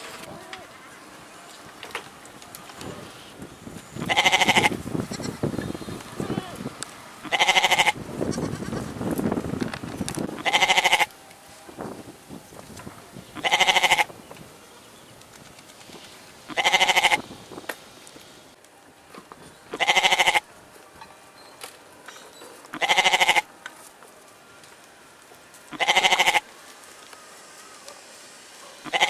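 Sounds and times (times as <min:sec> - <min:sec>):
goat bleating: 0:04.0 - 0:05.4, 0:06.2 - 0:06.6, 0:07.2 - 0:08.9, 0:10.4 - 0:11.1, 0:13.4 - 0:14.1, 0:16.5 - 0:17.2, 0:19.7 - 0:20.4, 0:22.8 - 0:23.5, 0:25.7 - 0:26.4.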